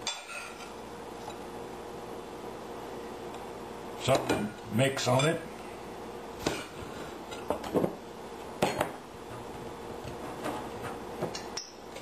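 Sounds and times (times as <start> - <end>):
metal spoon scraping frying pan: 0.0 - 0.8.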